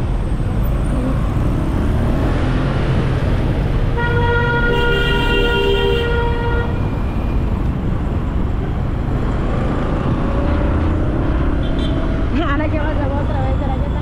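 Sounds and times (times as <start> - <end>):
two-tone vehicle horn: 4.0 - 6.8.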